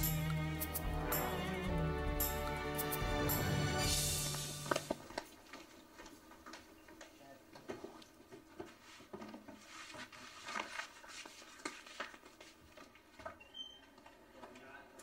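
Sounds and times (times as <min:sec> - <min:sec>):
clothing and book rustling: 0:04.6 - 0:13.4.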